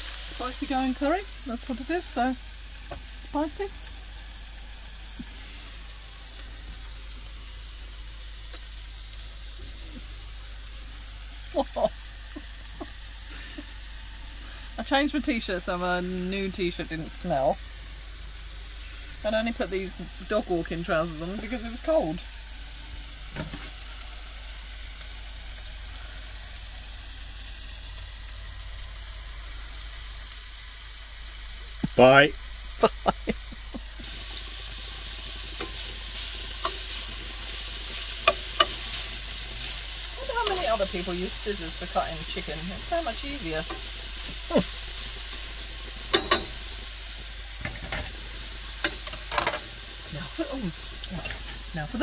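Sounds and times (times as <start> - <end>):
food sizzling in a pan: 0.0 - 52.0
kitchen utensils clinking: 46.0 - 46.6.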